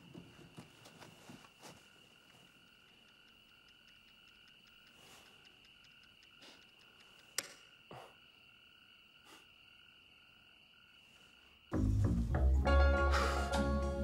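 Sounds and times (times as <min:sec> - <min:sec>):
frogs and insects trilling: 0:00.0 - 0:11.8
sharp click: 0:05.8 - 0:07.7.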